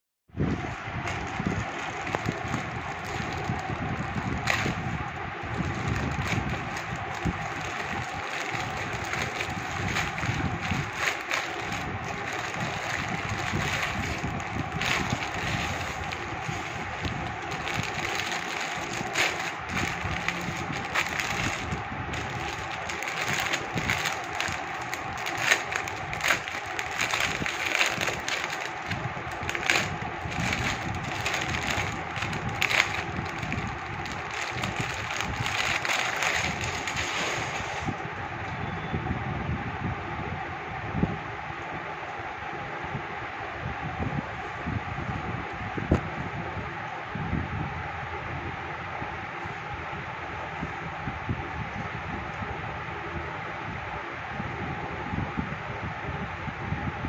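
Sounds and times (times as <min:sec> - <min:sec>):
plastic packaging crinkling: 0:00.5 - 0:38.0.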